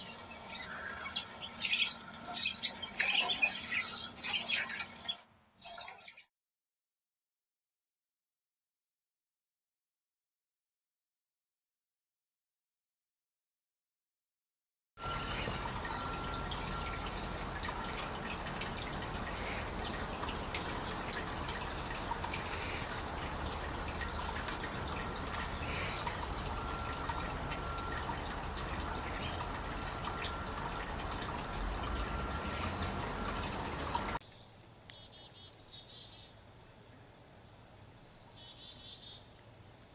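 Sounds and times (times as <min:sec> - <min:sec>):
songbird chirping: 0:00.0 - 0:06.3, 0:15.0 - 0:37.0, 0:37.8 - 0:39.8
water pouring from a spout: 0:15.0 - 0:34.2.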